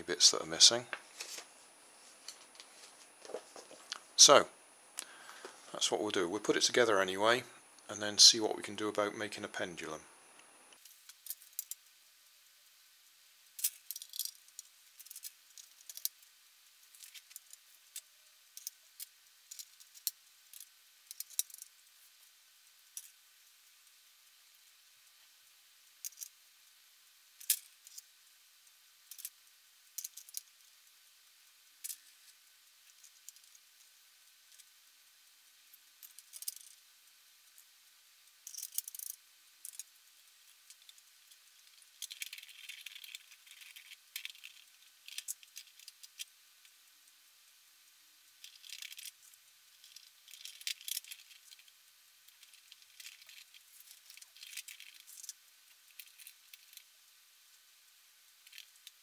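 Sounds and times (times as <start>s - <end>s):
plastic gears clicking and rattling: 16.9s - 21.7s, 26.0s - 26.3s, 29.1s - 29.4s, 30.0s - 30.5s, 36.0s - 36.8s, 38.4s - 39.9s, 40.5s - 46.3s, 48.4s - 51.7s, 52.3s - 56.9s, 58.4s - 59.0s.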